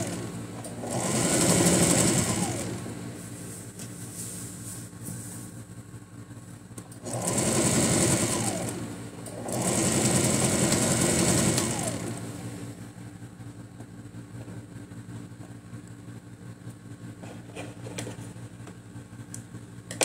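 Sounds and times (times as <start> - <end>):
electric sewing machine stitching: 0.0 - 3.1, 6.9 - 12.8.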